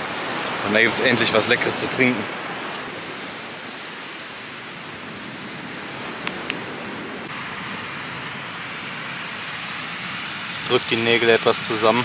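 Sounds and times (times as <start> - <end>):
surf rushing: 0.0 - 12.0
wind: 0.0 - 12.0.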